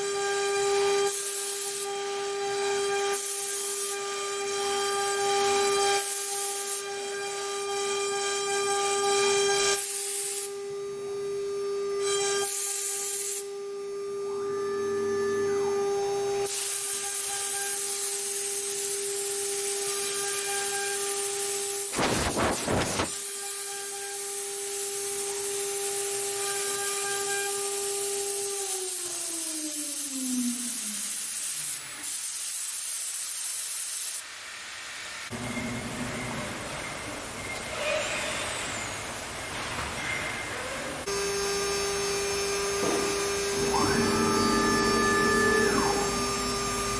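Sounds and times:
cnc router spindle whine: 0.0s - 21.2s, 41.0s - 46.9s
bit cutting wood hiss: 16.4s - 25.2s.

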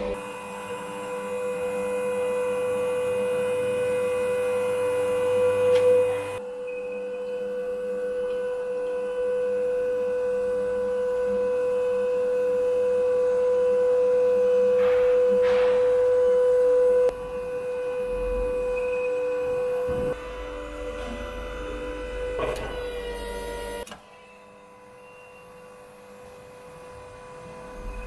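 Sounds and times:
log splitter motor humming: 7.7s - 24.8s.

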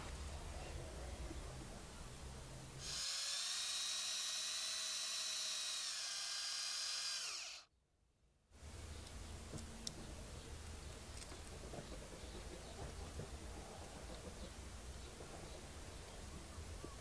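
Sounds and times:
rotary tool whining: 2.8s - 7.7s.

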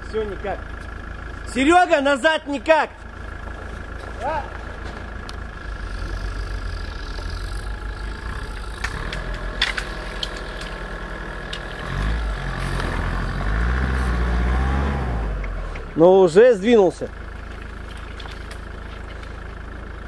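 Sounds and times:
car engine idling and revving: 0.0s - 20.0s
sharp clicks: 8.4s - 10.9s.

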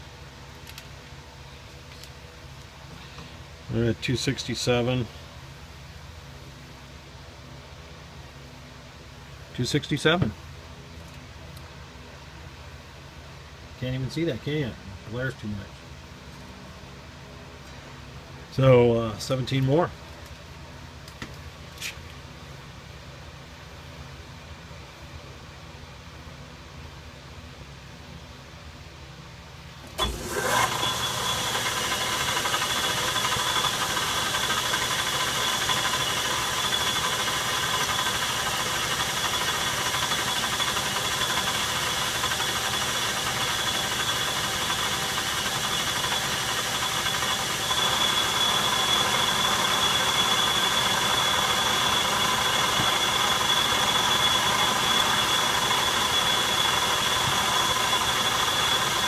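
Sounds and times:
lathe spinning with high whine: 29.9s - 59.0s.

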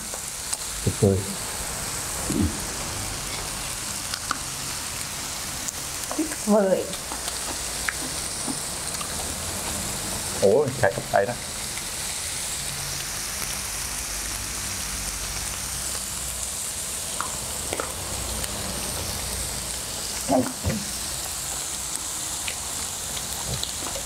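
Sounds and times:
meat and vegetables sizzling: 0.0s - 24.0s
short voice sound: 2.3s - 2.6s.

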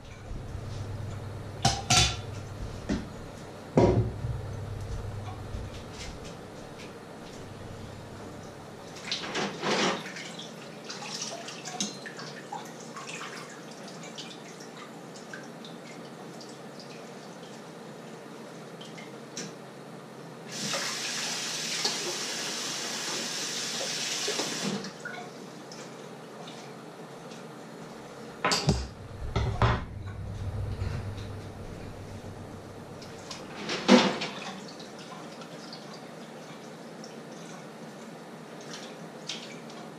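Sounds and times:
dishes clinking: 1.6s - 2.4s
loud knocks: 3.8s - 4.4s, 28.5s - 32.8s
tap running into sink: 3.8s - 6.9s.

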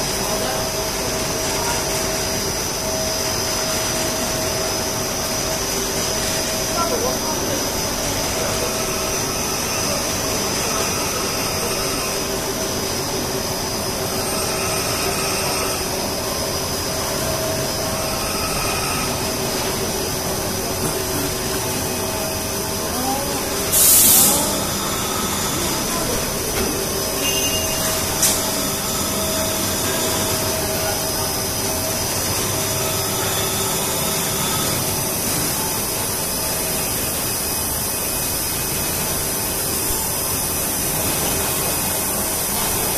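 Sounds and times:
machine hum and air rush: 0.0s - 42.9s
steady whining tones: 0.0s - 42.9s
loud hiss: 23.6s - 26.4s.

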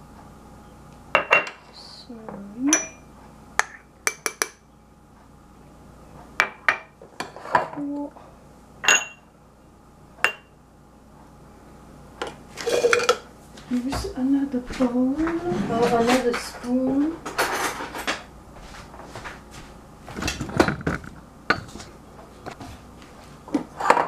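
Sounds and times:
glass jars clinking: 2.7s - 3.0s, 8.8s - 9.2s, 12.6s - 13.2s.

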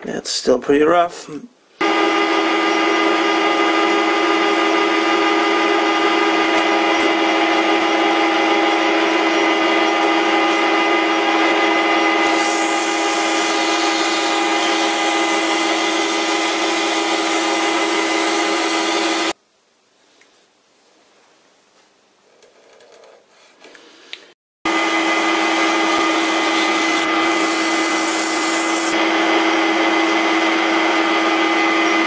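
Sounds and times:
metal lathe motor whine: 1.8s - 19.4s, 24.7s - 32.0s.

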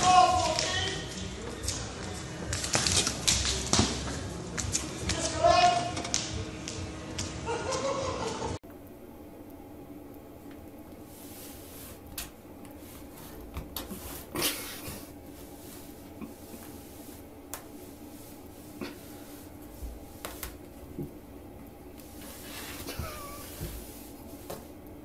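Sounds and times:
steady low hum: 8.6s - 25.0s
rug dragged across tiled floor: 11.0s - 21.1s, 22.0s - 24.8s.

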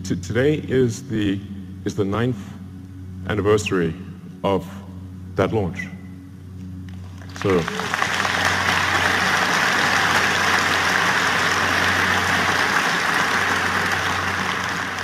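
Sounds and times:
large audience applauding: 7.1s - 15.0s.

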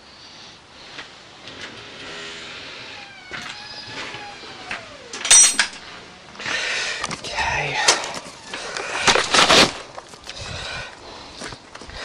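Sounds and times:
rustling handling noise: 3.1s - 10.5s
sharp metal clank: 5.2s - 5.9s.

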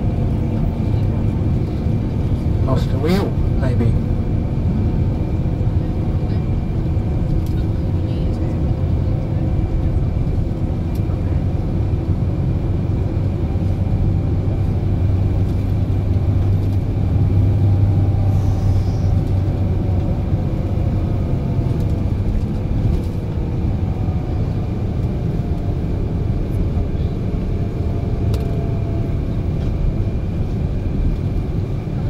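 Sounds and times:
diesel engine drone: 0.0s - 32.0s.

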